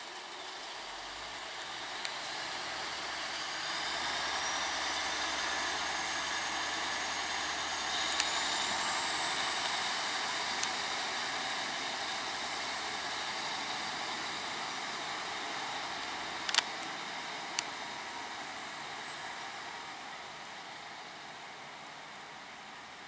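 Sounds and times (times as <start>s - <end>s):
diesel train pulling away: 0.0s - 23.0s
high rising whine: 0.0s - 23.0s
sharp clicks: 16.0s - 16.9s.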